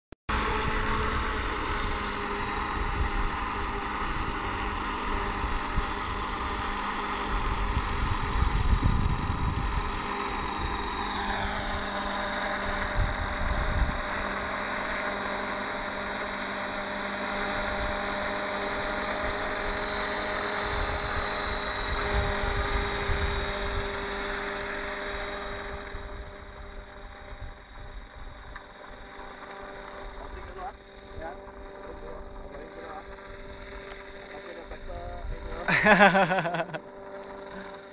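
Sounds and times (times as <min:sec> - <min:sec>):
high whine: 0:00.3 - 0:37.9
model helicopter engine running: 0:00.3 - 0:37.9
wind rumble on microphone: 0:05.3 - 0:10.9, 0:12.6 - 0:14.3, 0:20.7 - 0:24.2.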